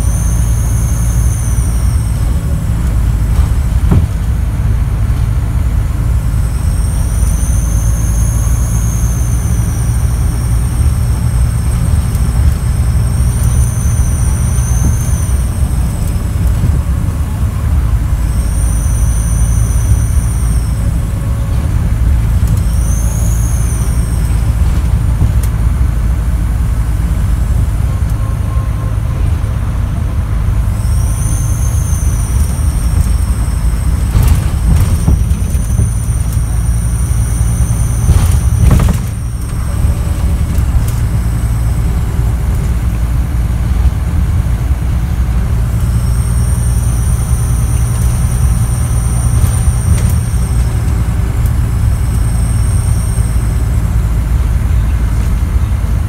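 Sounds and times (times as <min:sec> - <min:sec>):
turbocharger whistle: 0:00.0 - 0:04.6, 0:05.9 - 0:55.8
diesel bus engine running: 0:00.0 - 0:56.0.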